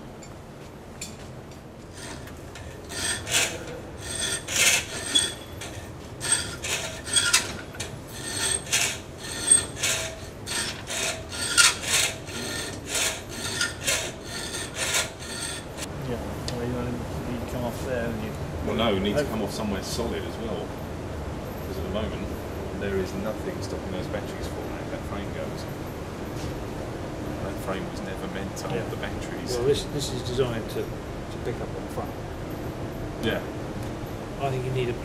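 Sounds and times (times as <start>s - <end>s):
hand tool rasping: 1.9s - 15.9s.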